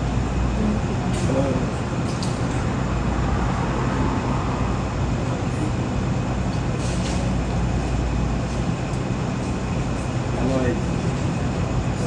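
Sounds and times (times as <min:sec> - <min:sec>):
low hum with hiss: 0:00.0 - 0:12.0
outdoor background rumble: 0:00.0 - 0:12.0.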